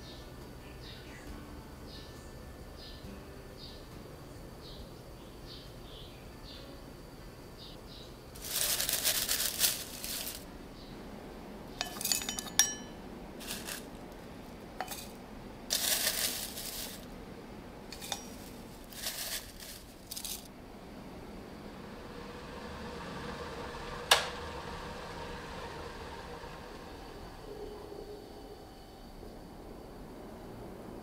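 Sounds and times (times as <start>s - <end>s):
dried tea leaves rustling: 8.4s - 10.5s, 11.8s - 17.2s, 17.9s - 20.5s
light clinks of glass and ceramic: 11.8s - 13.0s, 18.0s - 18.6s.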